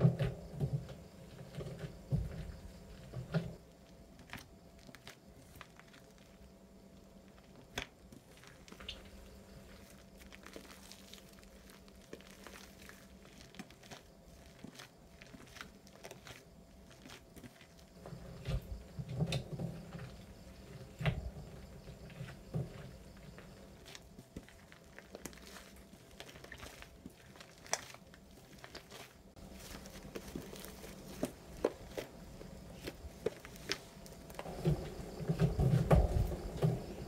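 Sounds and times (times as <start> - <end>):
slime crackling and popping: 9.7 - 17.8, 23.3 - 32.2.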